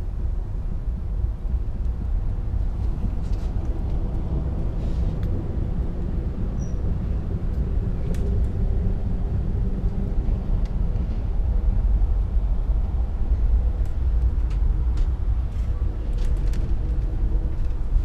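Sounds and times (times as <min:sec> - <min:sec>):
train wheels rumbling on rails: 0:01.0 - 0:18.0.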